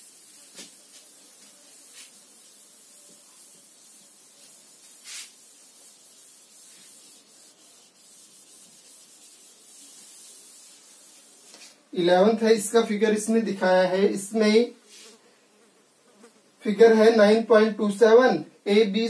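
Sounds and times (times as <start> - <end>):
duster rubbing on chalkboard: 0.0 - 11.8, 14.9 - 15.2.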